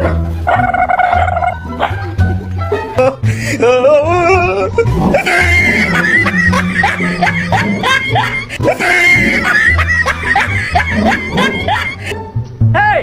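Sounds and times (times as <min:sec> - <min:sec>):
person laughing and shrieking: 0:03.0 - 0:12.2.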